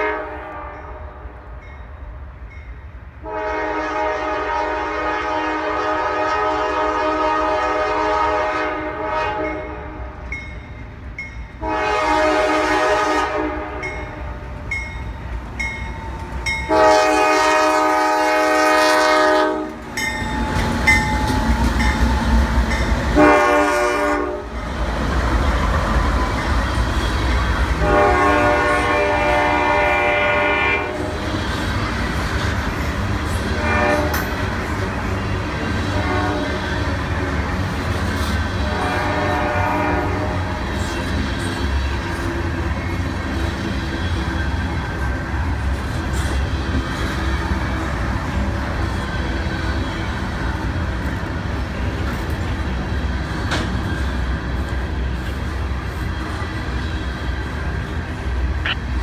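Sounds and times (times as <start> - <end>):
train horn blasts: 0.0 - 1.3, 3.2 - 10.0, 11.6 - 14.5, 16.5 - 19.9, 23.0 - 24.6, 27.7 - 31.3, 33.3 - 37.4, 38.6 - 40.9
train wheel noise: 0.0 - 59.0
locomotive engine rumble: 10.1 - 59.0.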